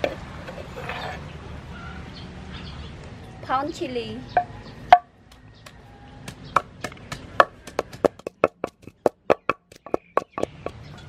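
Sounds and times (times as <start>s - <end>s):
pestle pounding in wooden mortar: 4.4s - 11.0s.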